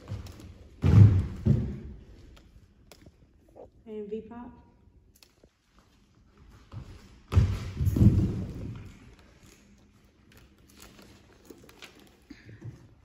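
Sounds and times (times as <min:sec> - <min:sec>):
heavy thuds on wooden floor: 0:00.8 - 0:02.0.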